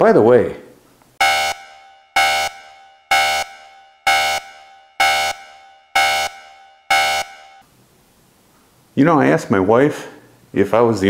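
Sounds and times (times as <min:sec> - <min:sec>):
alarm horn blasts: 0:01.2 - 0:07.6.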